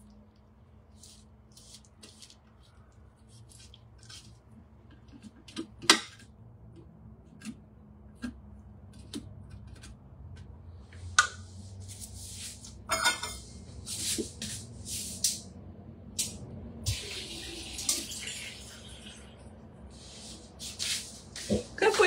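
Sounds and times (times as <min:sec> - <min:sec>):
kitchen tap water running: 0:16.9 - 0:19.3.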